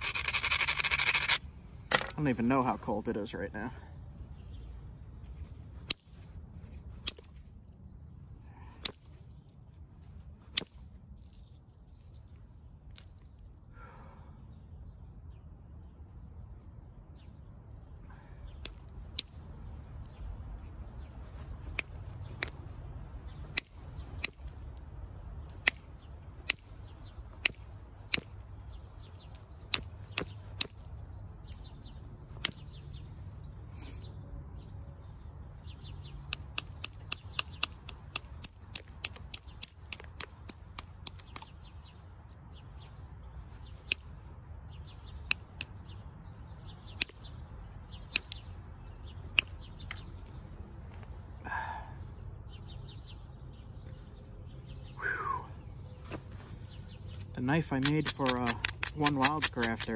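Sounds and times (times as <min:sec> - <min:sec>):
billet striking stone clicks: 0:18.6 - 0:19.4, 0:21.7 - 0:22.6, 0:23.5 - 0:26.8, 0:36.2 - 0:41.7, 0:46.9 - 0:47.3, 0:48.0 - 0:48.5, 0:49.3 - 0:50.3, 0:57.6 - 0:59.9.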